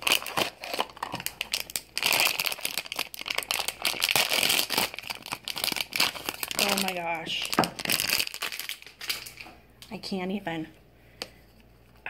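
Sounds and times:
foil bag crinkling: 0:00.0 - 0:09.6.

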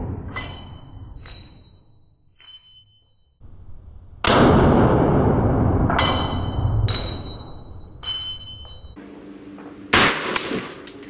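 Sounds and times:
rifle shot: 0:09.9 - 0:10.8.

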